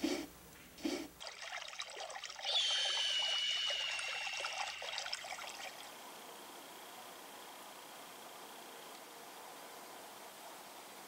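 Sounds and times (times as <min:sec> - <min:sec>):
liquid trickling: 0:01.2 - 0:06.0
high ringing tone: 0:02.4 - 0:05.8.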